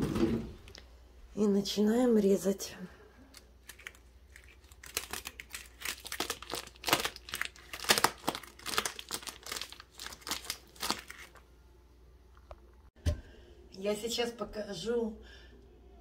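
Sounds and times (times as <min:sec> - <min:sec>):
plastic wrapping crinkling and tearing: 0:03.3 - 0:11.4.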